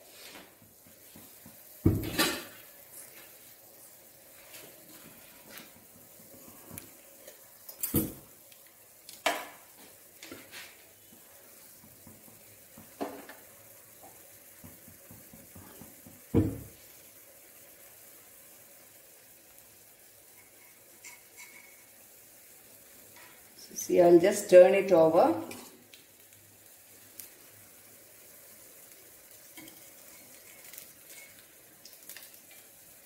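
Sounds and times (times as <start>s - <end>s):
batter sizzling in oil: 0.0s - 33.0s
metal utensils clinking: 20.4s - 21.8s.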